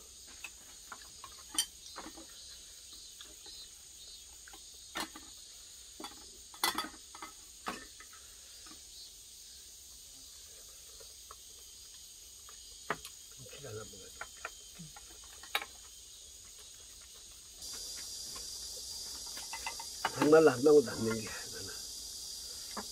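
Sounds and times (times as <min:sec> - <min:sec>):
insects chorus: 0:00.0 - 0:22.9
utensils clicking on steel bowls: 0:19.2 - 0:21.4.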